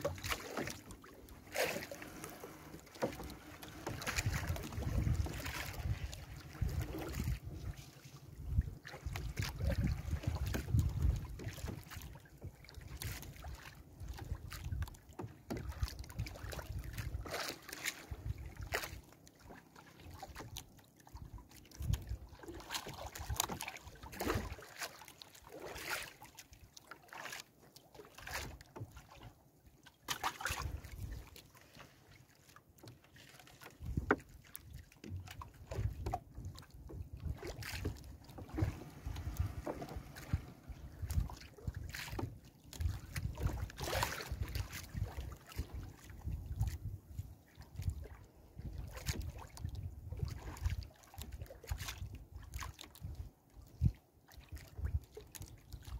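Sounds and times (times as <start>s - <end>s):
wind rumble on microphone: 3.8s - 15.0s, 21.2s - 22.3s, 33.8s - 34.3s, 35.1s - 55.9s.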